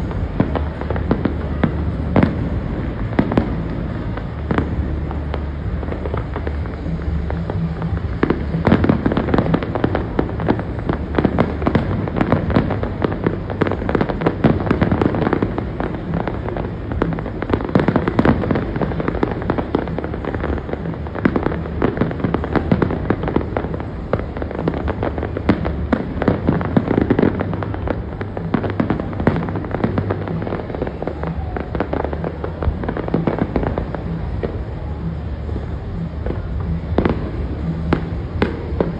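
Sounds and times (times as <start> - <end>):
fireworks bursts and crackling: 0.0 - 38.9.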